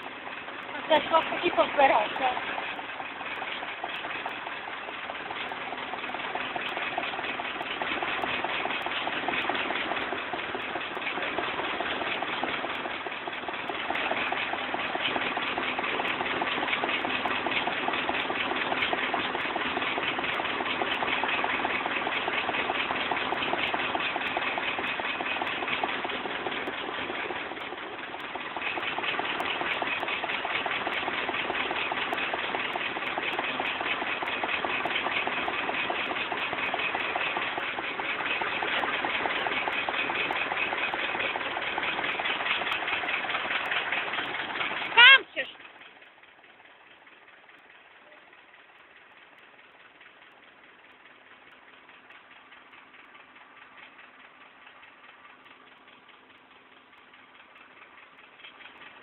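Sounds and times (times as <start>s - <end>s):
grain pouring into trailer: 0.0s - 45.0s
combine harvester running: 0.0s - 59.0s.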